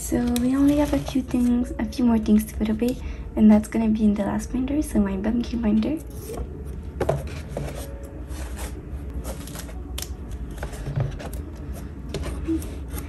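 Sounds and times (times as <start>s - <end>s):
plastic sleeves rustling: 0.0s - 1.8s, 7.2s - 13.0s.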